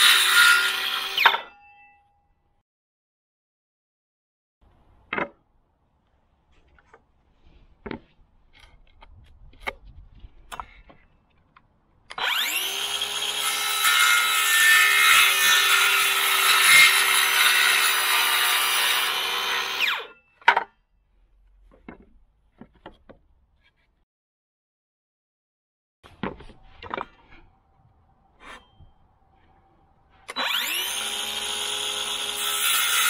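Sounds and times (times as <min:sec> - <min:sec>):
circular saw cutting board: 0:00.0 - 0:01.6, 0:12.1 - 0:20.2, 0:30.1 - 0:33.0.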